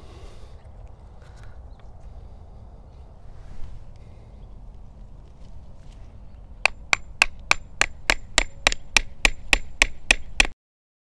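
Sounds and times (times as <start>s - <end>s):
hatchet chopping tree bark: 6.6s - 10.6s.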